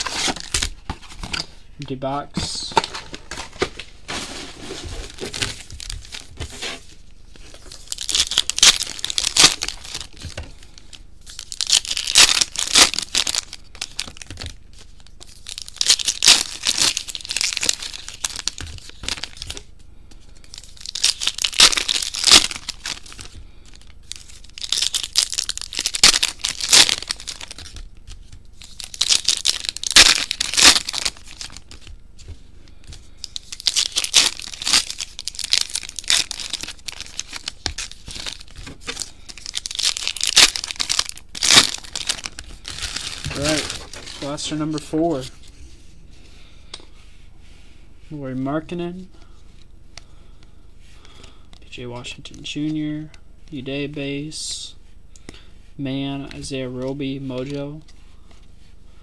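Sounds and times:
wrappers tearing and crinkling: 0.0 - 0.9, 7.4 - 19.6, 20.4 - 31.9, 32.8 - 45.3.

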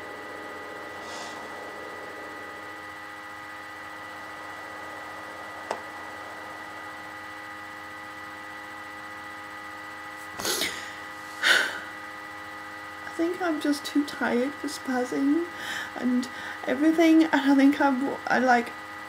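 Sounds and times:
electrical hum: 0.0 - 19.0
breathy burst: 0.9 - 1.8.

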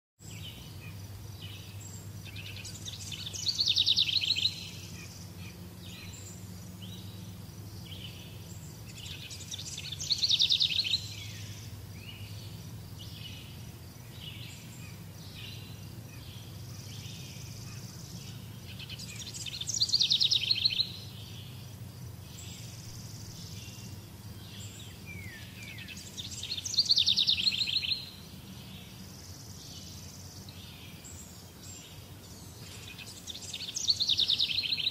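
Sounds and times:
bird chirps: 0.2 - 34.9
steady low hum: 0.2 - 34.9
bird trilling: 8.3 - 13.5.

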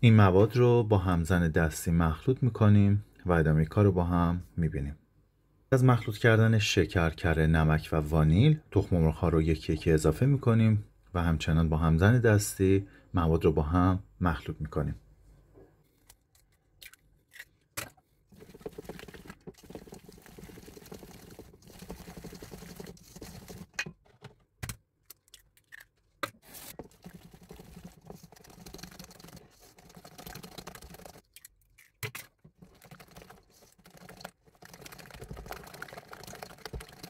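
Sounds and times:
wire whisk rattling in bowl: 18.4 - 23.8, 26.8 - 31.2, 32.6 - 37.0.

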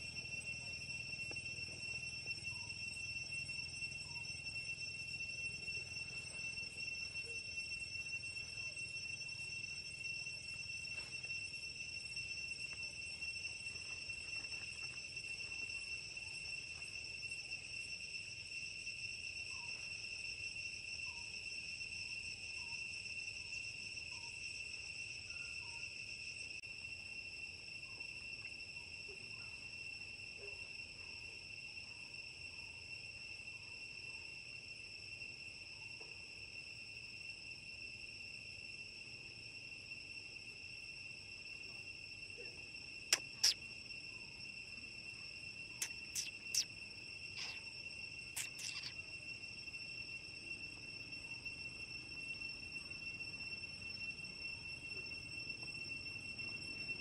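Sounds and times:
high-pitched insect drone: 0.0 - 57.0
faint short chirps: 43.1 - 43.7, 45.8 - 47.7, 48.3 - 49.1.

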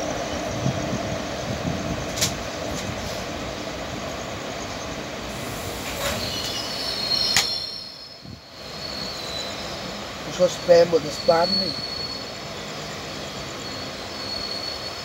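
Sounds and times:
train running rumble and rattle: 0.0 - 15.0
train wheels clicking: 2.0 - 3.3, 5.3 - 7.8.

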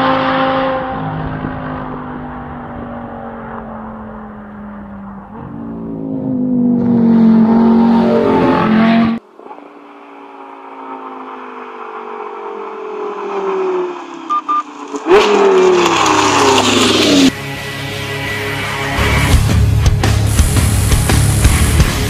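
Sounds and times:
sports car engine revving: 0.0 - 9.2.

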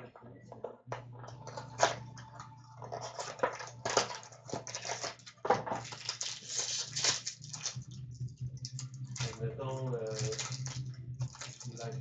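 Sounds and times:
steady low hum: 0.0 - 12.0
wrapper crinkling and tearing: 2.8 - 8.0, 8.6 - 9.4, 10.0 - 12.0.

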